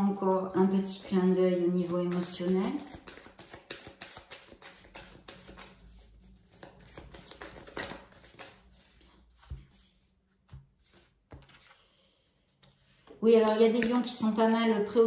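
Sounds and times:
cards being shuffled: 1.7 - 9.8.

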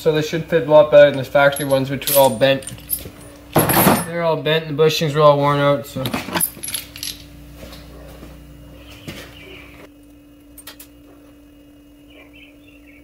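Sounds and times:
steady low hum: 0.0 - 13.0
metal parts clinking: 0.9 - 4.2, 6.0 - 7.3.

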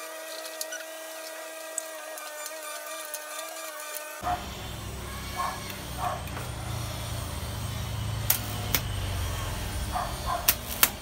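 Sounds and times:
spot welds cracking: 0.0 - 11.0
low electrical hum: 4.2 - 11.0.

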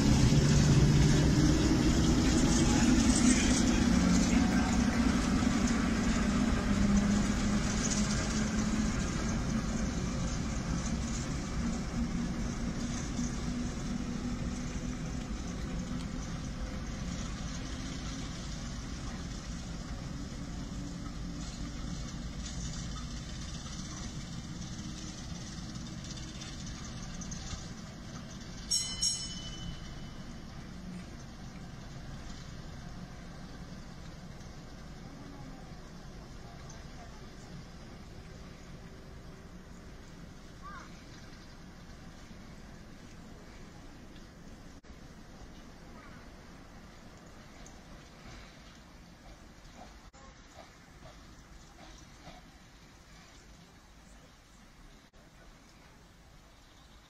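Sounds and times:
diesel shunter engine running: 0.0 - 28.7.

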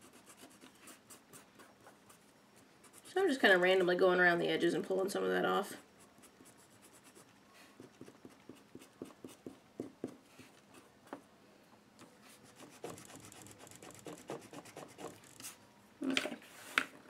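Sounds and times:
eraser scrubbing on card: 12.4 - 15.5.

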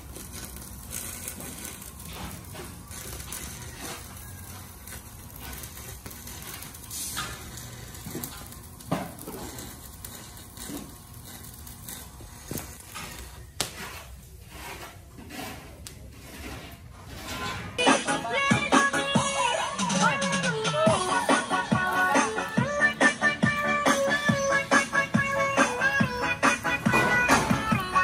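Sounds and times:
arc welding crackling hiss: 0.0 - 14.4, 17.8 - 28.0.

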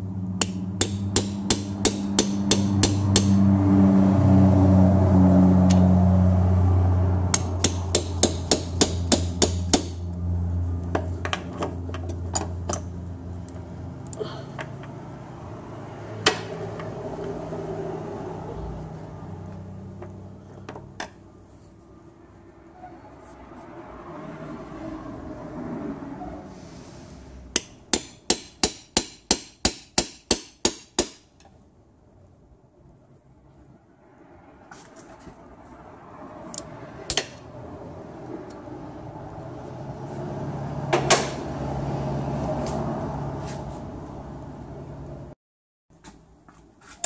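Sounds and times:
hammer striking steel punch: 0.4 - 3.4, 7.3 - 10.0, 27.5 - 31.3.

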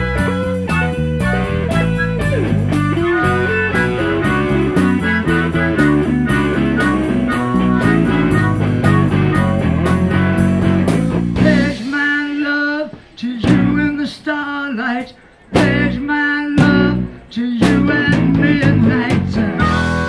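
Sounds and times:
harmonica: 0.0 - 11.9, 17.8 - 20.0
bass: 0.0 - 20.0
drums: 0.0 - 20.0
electric guitar: 0.0 - 20.0.

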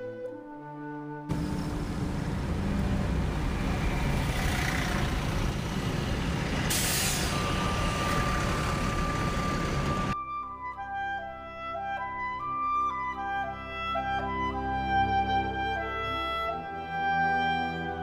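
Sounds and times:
road noise: 1.3 - 10.2
truck engine rumble: 1.3 - 10.2
air brake hiss: 6.6 - 7.7.

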